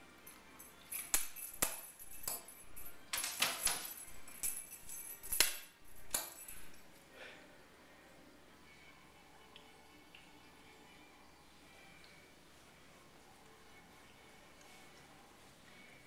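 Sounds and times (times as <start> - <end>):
cat toy jingling and tapping: 0.6 - 6.8.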